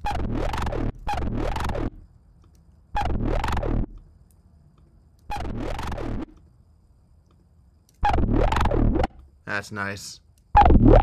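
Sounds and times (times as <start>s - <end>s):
resonant synth tone swooping: 0.0s - 2.0s, 3.0s - 3.9s, 5.3s - 6.3s, 8.0s - 9.1s, 10.6s - 11.0s
stepping synth bass: 0.0s - 2.0s, 3.0s - 4.0s, 5.3s - 6.3s, 8.0s - 9.2s, 10.6s - 11.0s.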